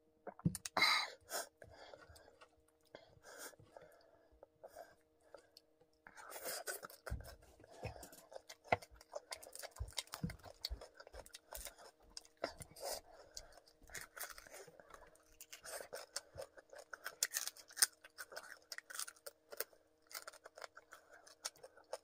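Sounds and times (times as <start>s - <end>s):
fried chicken crackling and crunching: 6.3s - 22.0s.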